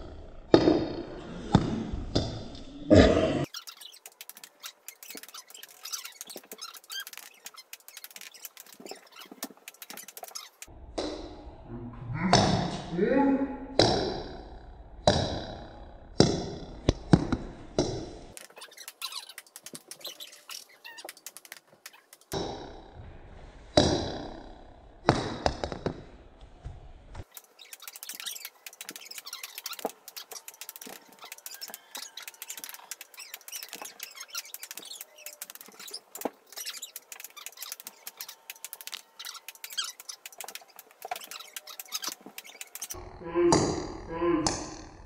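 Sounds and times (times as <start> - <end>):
faint rapid clicking: 3.8 - 10.7, 27.2 - 43.0.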